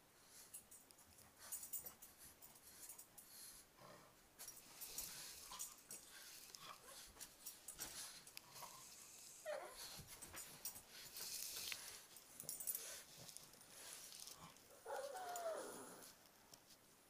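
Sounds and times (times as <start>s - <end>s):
faint shuffling and clicks: 4.4s - 17.0s.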